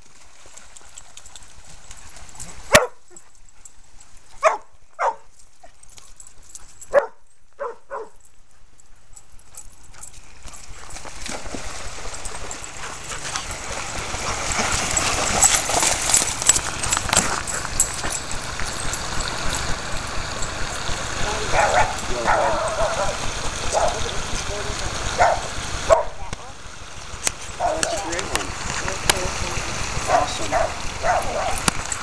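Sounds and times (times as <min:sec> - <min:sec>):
dogs barking: 0:02.7 - 0:03.0, 0:04.4 - 0:05.2, 0:06.9 - 0:08.2, 0:18.9 - 0:24.2, 0:25.0 - 0:26.2, 0:27.5 - 0:28.2, 0:30.0 - 0:31.7.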